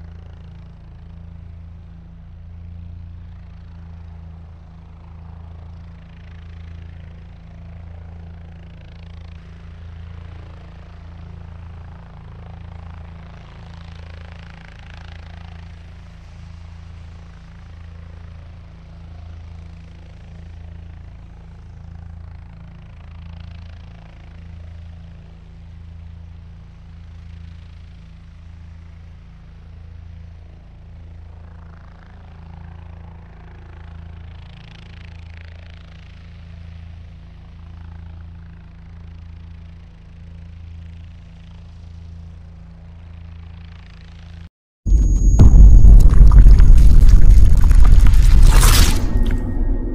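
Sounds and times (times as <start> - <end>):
helicopter rotor throb: 2.7 - 15.6.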